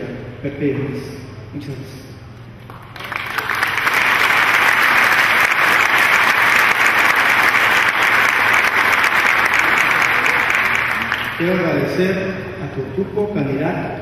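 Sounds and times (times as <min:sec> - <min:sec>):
audience applauding: 0:02.7 - 0:11.8.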